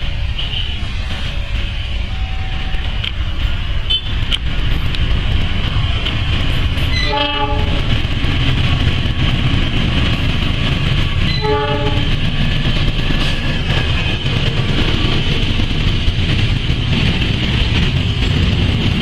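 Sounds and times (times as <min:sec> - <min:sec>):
freight train rumble and clatter: 0:00.0 - 0:19.0
locomotive horn blasts: 0:06.9 - 0:07.9, 0:11.3 - 0:12.1.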